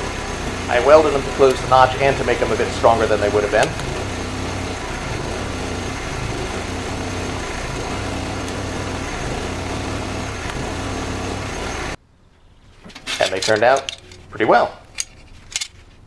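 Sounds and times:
low hum: 0.0s - 12.0s
welding arc hiss and buzz: 0.0s - 12.0s.

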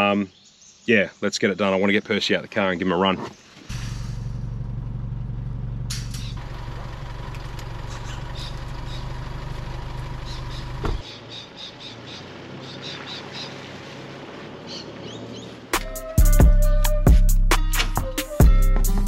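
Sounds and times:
car engine idling: 3.6s - 15.9s
engine switch-off thump: 3.7s - 11.1s.

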